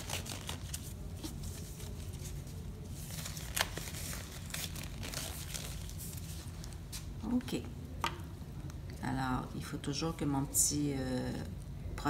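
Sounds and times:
rubber gloves crinkling: 0.0s - 7.2s
low room hum: 0.0s - 12.0s.

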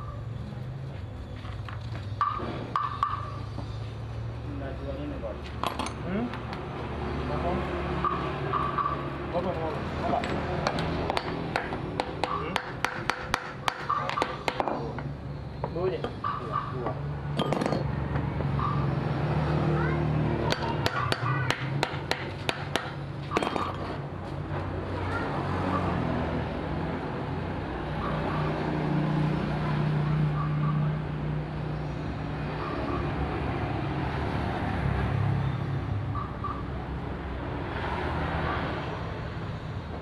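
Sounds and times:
sharp knocks: 10.6s - 14.9s, 20.5s - 23.8s.

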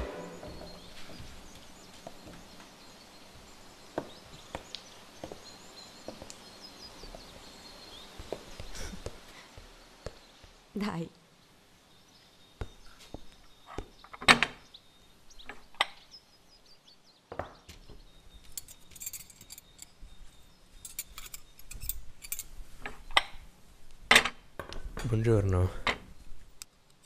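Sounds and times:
light metallic clinking: 18.4s - 22.6s.

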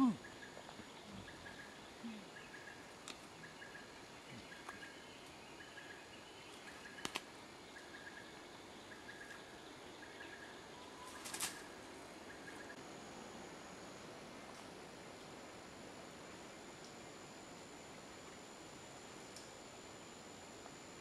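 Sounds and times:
faint steady hiss: 0.0s - 21.0s
brief crackle: 11.2s - 11.7s.

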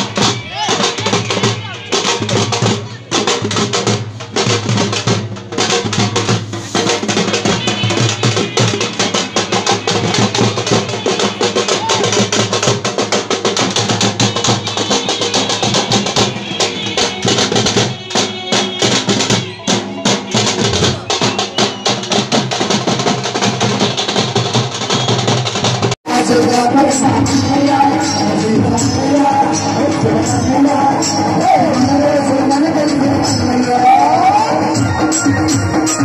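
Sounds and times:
hand drums beating fast rhythm: 0.0s - 26.0s.

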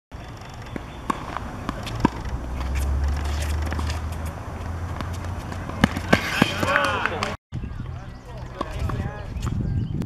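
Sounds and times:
ball bouncing on hard court: 0.6s - 7.4s
tennis ball hit by racket: 0.6s - 7.4s.

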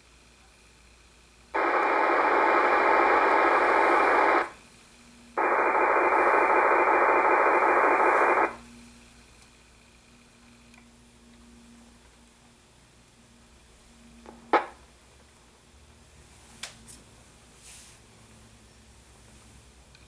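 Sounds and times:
digital data noise: 5.4s - 8.6s.

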